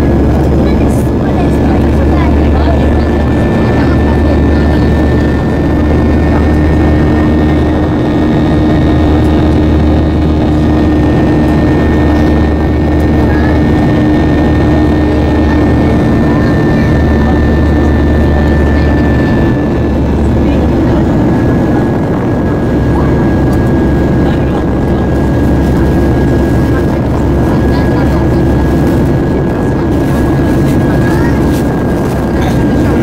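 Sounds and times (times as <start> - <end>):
jet engines heard from cabin: 0.0 - 33.0.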